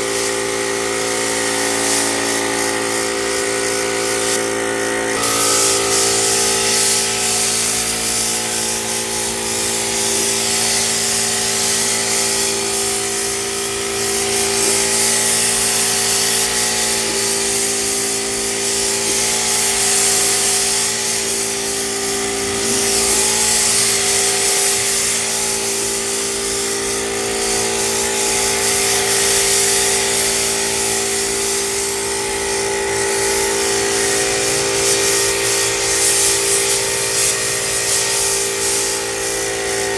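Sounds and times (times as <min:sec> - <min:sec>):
paint spray gun hissing: 0:00.0 - 0:39.9
steady machine hum: 0:00.7 - 0:20.2, 0:21.2 - 0:28.5.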